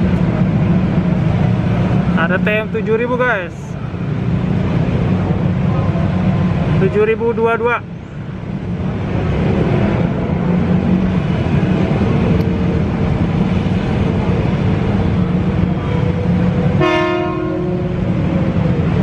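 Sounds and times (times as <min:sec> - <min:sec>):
electric train rumbling: 0:00.0 - 0:19.0
train horn blast: 0:16.8 - 0:18.0.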